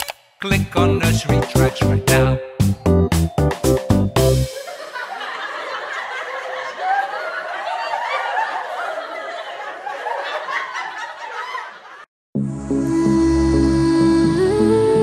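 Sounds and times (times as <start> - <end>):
music track: 0.4 - 4.9, 12.4 - 15.0
group of people laughing: 4.5 - 12.1.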